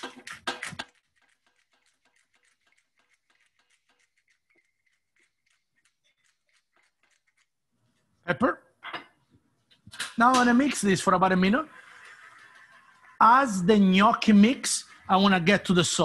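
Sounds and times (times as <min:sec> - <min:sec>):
pepper mill grinding: 0:00.0 - 0:07.6
person speaking: 0:08.2 - 0:08.8, 0:09.9 - 0:12.0, 0:13.1 - 0:16.0.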